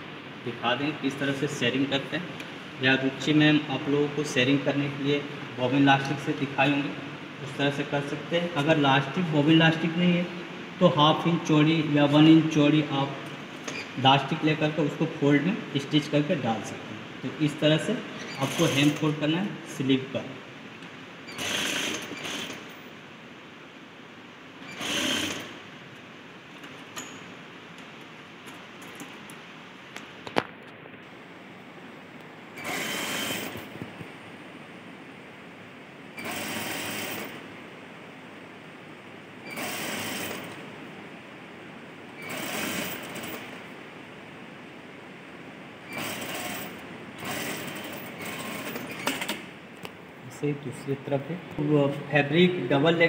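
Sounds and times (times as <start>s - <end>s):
sewing machine stitching: 18.3s - 19.1s, 21.3s - 22.7s, 24.6s - 25.6s, 32.6s - 33.7s, 36.2s - 37.4s, 39.5s - 40.5s, 42.2s - 43.6s, 45.9s - 49.5s.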